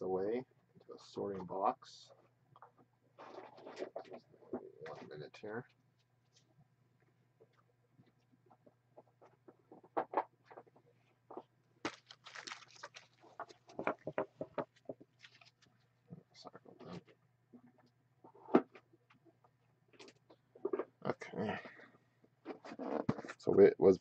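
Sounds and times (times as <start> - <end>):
trading cards rustling and clicking: 11.3 - 14.3.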